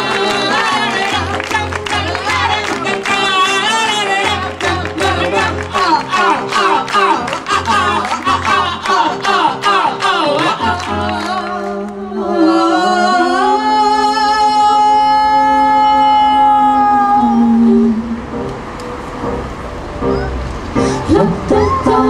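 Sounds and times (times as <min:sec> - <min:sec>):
people singing live: 0:00.0 - 0:18.2, 0:20.9 - 0:22.0
electric keyboard: 0:17.0 - 0:22.0.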